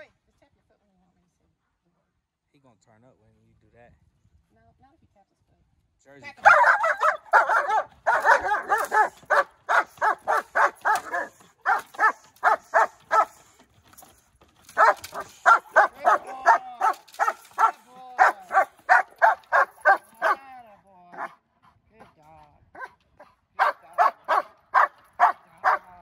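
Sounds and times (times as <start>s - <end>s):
dog barking rapidly: 6.4s - 13.5s, 14.7s - 20.4s, 21.2s - 21.4s, 22.8s - 23.0s, 23.6s - 26.0s.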